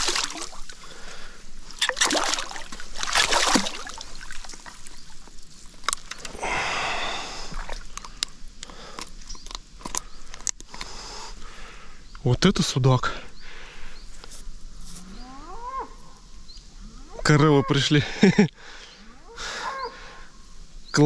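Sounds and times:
shallow water splashing: 0.0s - 8.3s.

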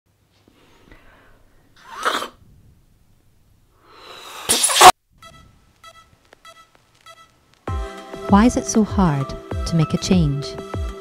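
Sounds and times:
person blowing up a balloon: 1.8s - 2.4s, 3.8s - 5.0s.

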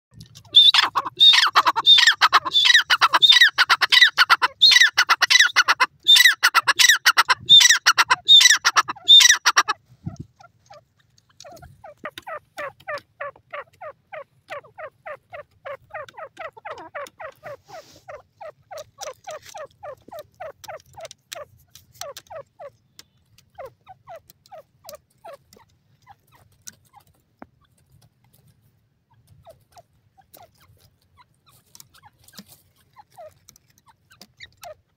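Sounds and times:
bird shrill repeated calls: 0.5s - 9.8s.

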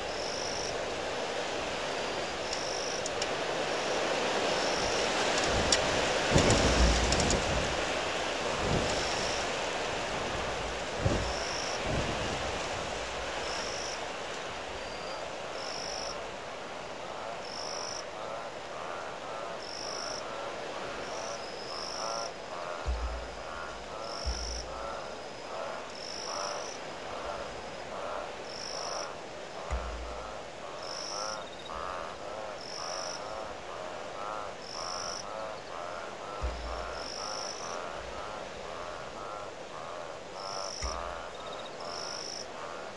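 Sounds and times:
wind gusts thumping microphone: 0.0s - 17.2s, 20.2s - 42.4s
frogs croaking: 0.0s - 42.9s
windy hiss: 0.0s - 42.9s.

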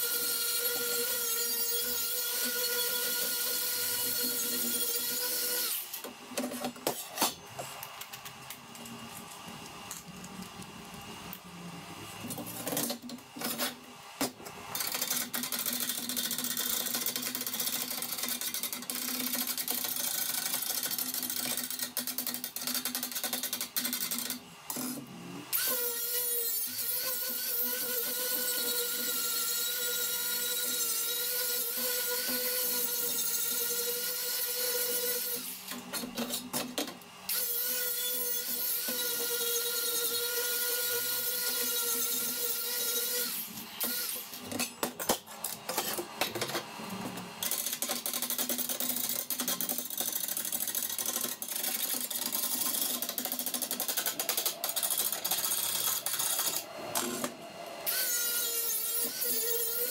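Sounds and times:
angle grinder whining on steel: 0.0s - 6.1s.

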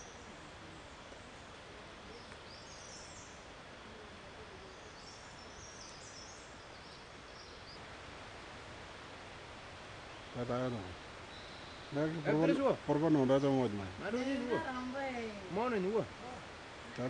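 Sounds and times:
forest ambience hiss: 0.0s - 17.0s
bird chirping: 2.1s - 3.4s, 4.6s - 7.8s, 10.1s - 12.4s.

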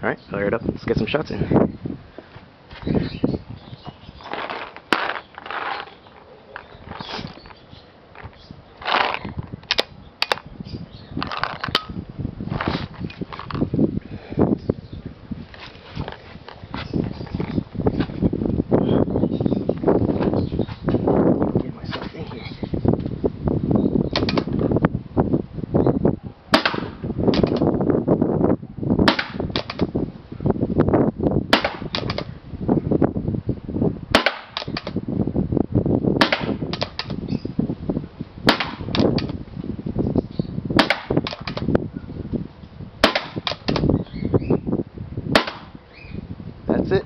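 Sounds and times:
paintball marker shots popping: 24.1s - 24.6s, 26.5s - 27.7s, 29.1s - 29.9s, 31.5s - 32.3s, 34.2s - 35.0s, 36.2s - 37.2s, 38.5s - 39.4s, 40.8s - 41.7s, 43.0s - 44.0s, 45.4s - 45.8s.

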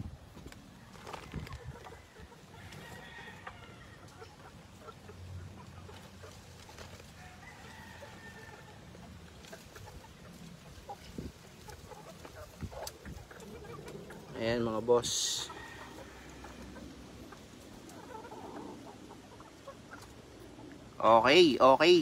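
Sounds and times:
hens clucking: 0.3s - 22.0s
faint rooster crow: 1.2s - 4.2s, 7.1s - 8.8s, 15.4s - 16.8s.

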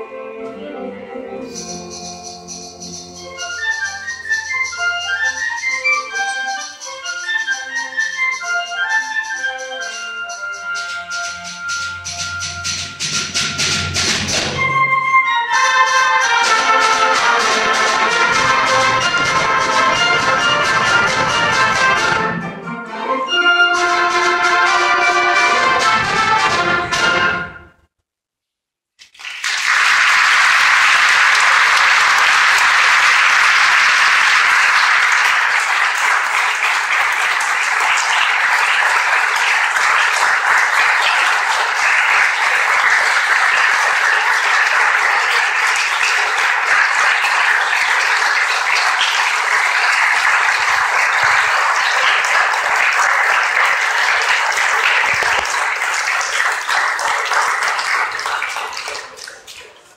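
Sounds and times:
audience applauding: 15.7s - 22.3s, 23.8s - 27.4s, 29.0s - 59.9s.

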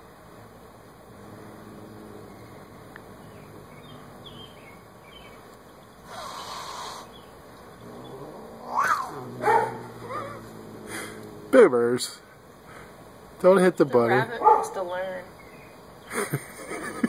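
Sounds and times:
cat growling: 1.1s - 4.5s, 6.1s - 7.1s, 7.8s - 12.3s
cat hissing: 6.0s - 7.2s, 7.8s - 13.0s
cat yowling: 7.9s - 11.5s.

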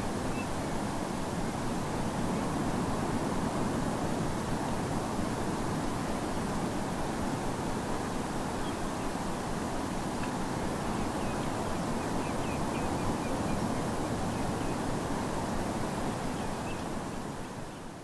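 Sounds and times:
distant surf: 0.0s - 17.8s
distant bird calls: 10.8s - 14.9s.

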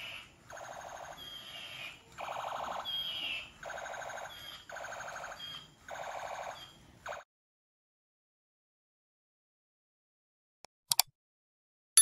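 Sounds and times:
toy gun machine-gun sound effect: 0.0s - 7.2s.

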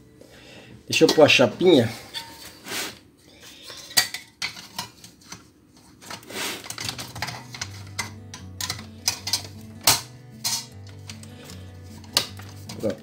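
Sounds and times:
sheet metal clicking and rattling: 6.7s - 10.7s.

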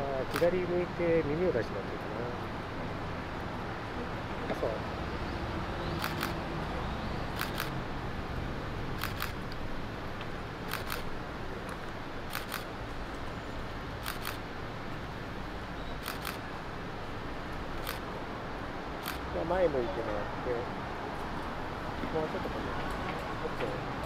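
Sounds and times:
camera shutter double clicks: 0.3s - 0.5s, 6.0s - 6.4s, 7.4s - 7.8s, 9.0s - 9.4s, 10.7s - 11.1s, 12.3s - 12.7s, 14.0s - 14.4s, 16.0s - 16.4s, 17.8s - 18.0s, 19.0s - 19.2s.

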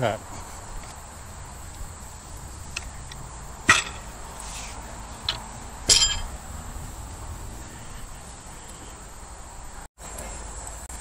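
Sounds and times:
outdoor background noise: 0.0s - 11.0s
sharp metallic clink: 3.7s - 4.1s, 5.3s - 6.3s.

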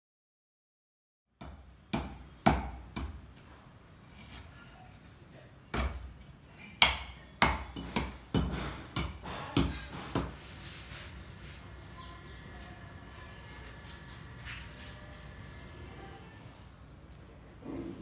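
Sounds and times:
faint high chirps: 10.8s - 17.5s.

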